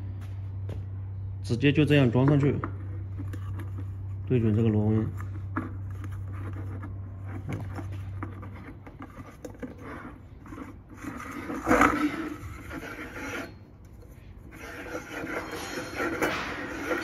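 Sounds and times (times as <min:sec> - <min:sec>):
threads scraping as part is screwed: 0:05.2 - 0:17.0.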